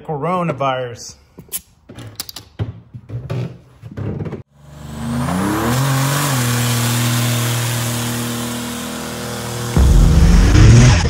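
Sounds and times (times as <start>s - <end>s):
car engine revving high: 4.6s - 11.0s.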